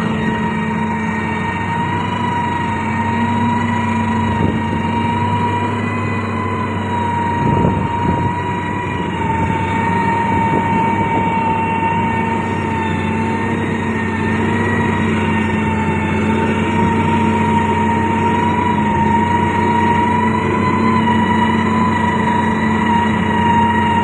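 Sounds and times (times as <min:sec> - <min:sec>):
diesel grader engine drone: 0:00.0 - 0:24.0
high whine: 0:00.0 - 0:24.0.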